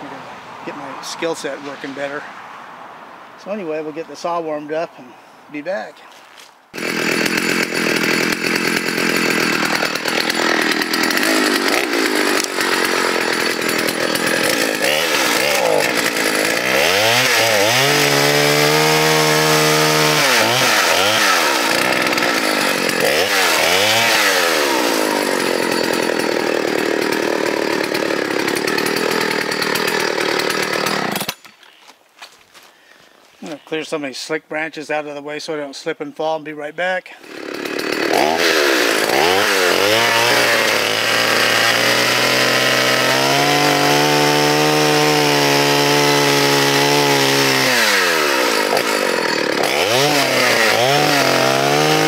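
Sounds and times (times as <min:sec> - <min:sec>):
chainsaw revving: 0:06.8 - 0:31.4, 0:37.2 - 0:52.0.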